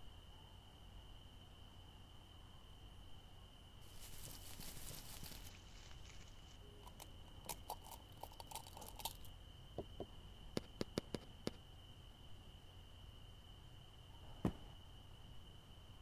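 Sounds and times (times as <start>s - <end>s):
faint steady high tone: 5.5s - 7.4s.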